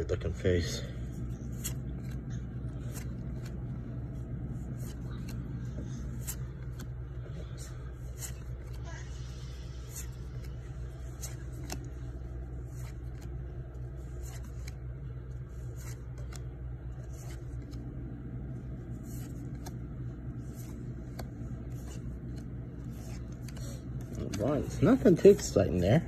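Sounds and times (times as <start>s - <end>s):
steady low hum: 0.0s - 26.0s
cards flicking against cards: 1.5s - 4.0s, 9.9s - 15.0s, 15.7s - 17.9s.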